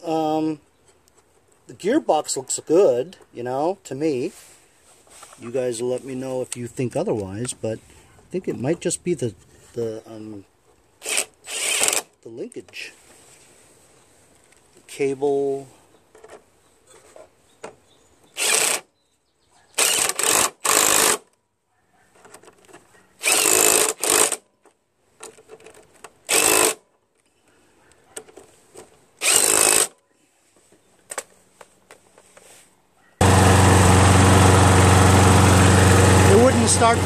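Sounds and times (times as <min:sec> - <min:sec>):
impact driver whirring and hammering: 0:11.0 - 0:12.1, 0:18.3 - 0:18.9, 0:19.8 - 0:21.3, 0:23.2 - 0:24.4, 0:26.3 - 0:26.8, 0:29.2 - 0:30.0, 0:33.2 - 0:37.0
lawn mower engine running: 0:33.2 - 0:37.0.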